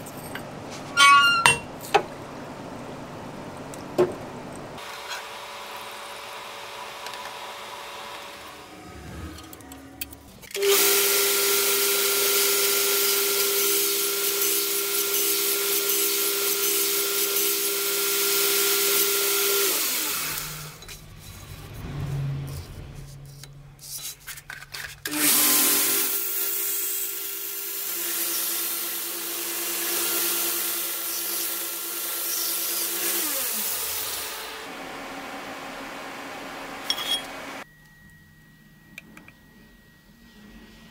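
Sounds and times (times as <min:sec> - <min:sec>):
power grinder grinding steel: 0:10.5 - 0:20.8, 0:25.1 - 0:37.6.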